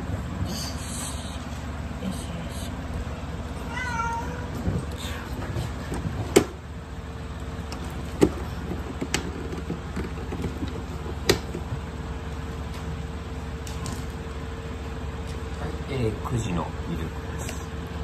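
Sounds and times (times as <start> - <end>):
kitten mewing: 3.6 - 5.4.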